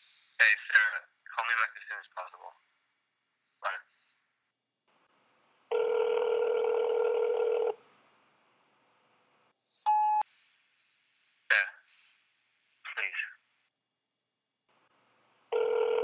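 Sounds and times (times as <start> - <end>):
phone ringback tone: 5.7 - 7.8, 15.5 - 16.0.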